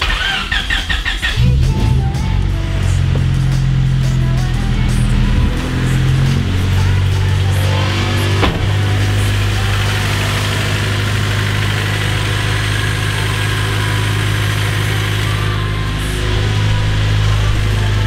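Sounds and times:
car engine idling: 0:00.0 - 0:18.0
short knock: 0:08.4 - 0:08.9.

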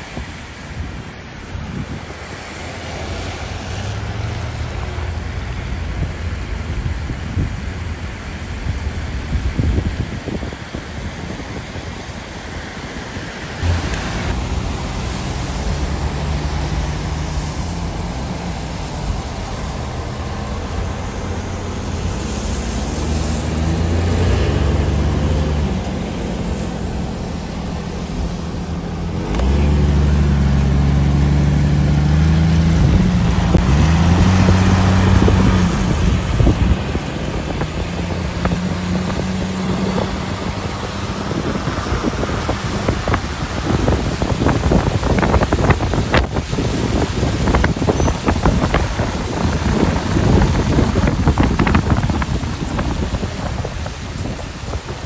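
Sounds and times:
tyre noise on wet road: 0:00.0 - 0:55.0
car engine accelerating: 0:13.5 - 0:55.0.

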